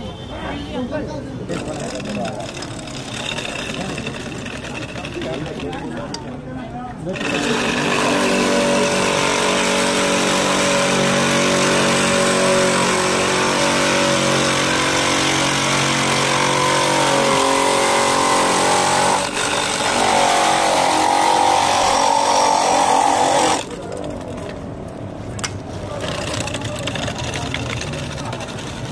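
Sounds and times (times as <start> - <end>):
ice grinding rasp: 1.5 - 6.1, 7.1 - 24.0, 25.9 - 28.9
ice crusher motor humming: 1.5 - 6.2, 7.1 - 24.0.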